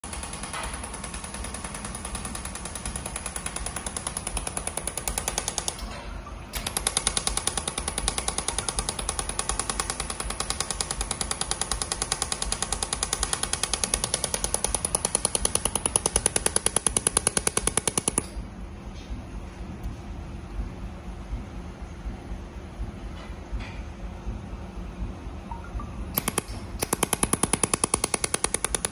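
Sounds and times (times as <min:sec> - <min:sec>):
laser welder sharp clicks: 0:26.2 - 0:28.9.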